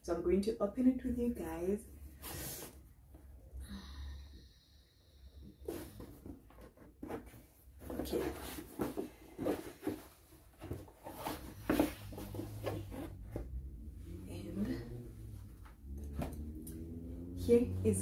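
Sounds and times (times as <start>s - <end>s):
cardboard box scrapes and rustles: 5.6s - 13.4s.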